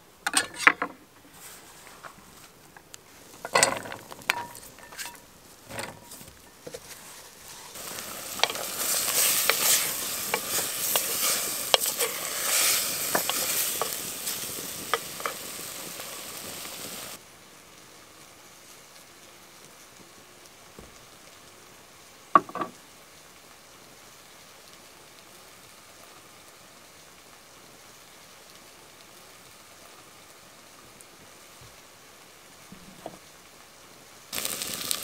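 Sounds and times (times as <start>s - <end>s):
meat sizzling in a pot: 0.0s - 35.0s.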